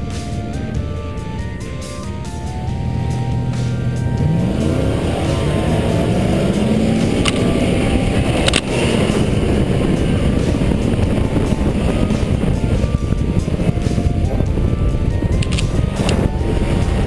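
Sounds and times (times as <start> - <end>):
truck engine revving: 0.0 - 17.0
sharp clicks: 7.1 - 8.9, 15.3 - 16.2.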